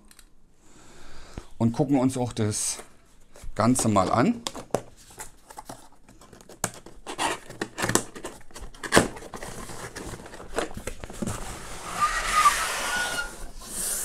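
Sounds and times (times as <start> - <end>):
cardboard box scraping and rustling: 11.1 - 14.0.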